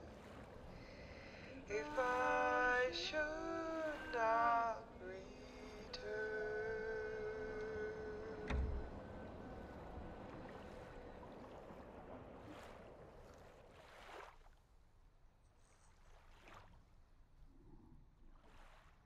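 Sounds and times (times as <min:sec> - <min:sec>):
soft water splashes: 0:00.0 - 0:19.0
water lapping: 0:00.0 - 0:19.0
low thump: 0:08.4 - 0:09.6.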